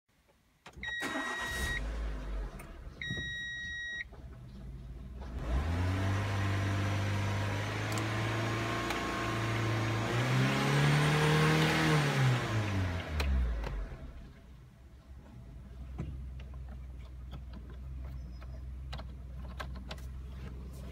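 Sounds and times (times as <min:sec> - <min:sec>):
car engine starting and idling: 0:00.6 - 0:20.9
dashboard warning beeps: 0:00.8 - 0:01.9, 0:03.0 - 0:04.1.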